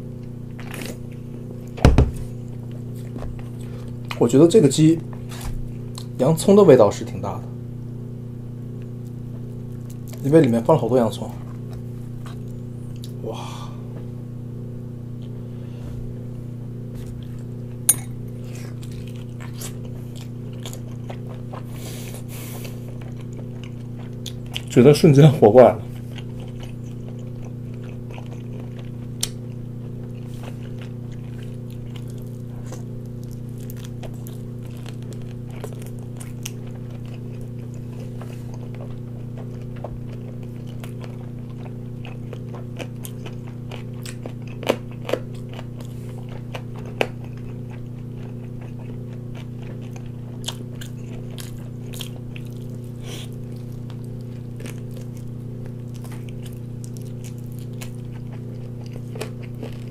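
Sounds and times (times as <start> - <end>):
low hum: 0.0 - 42.7
chewing crisp chicken: 0.2 - 6.2, 8.8 - 13.2, 17.0 - 59.9.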